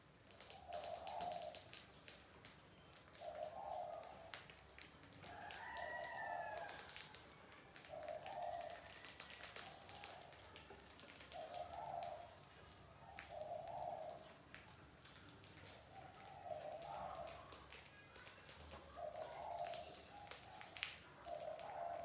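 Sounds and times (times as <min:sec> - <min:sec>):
faint ticks and scratches: 0:00.0 - 0:22.0
dove cooing: 0:00.4 - 0:01.9, 0:03.0 - 0:07.0, 0:07.8 - 0:14.5, 0:15.6 - 0:17.7, 0:18.8 - 0:22.0.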